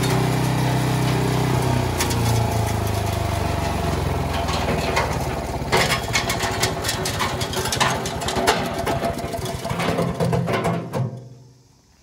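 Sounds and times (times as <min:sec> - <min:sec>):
small engine idling: 0:00.0 - 0:10.5.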